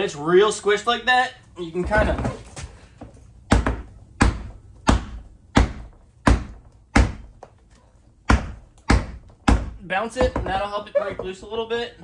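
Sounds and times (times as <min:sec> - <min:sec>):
tire bouncing thuds on floor: 0:01.8 - 0:07.6, 0:08.2 - 0:11.6.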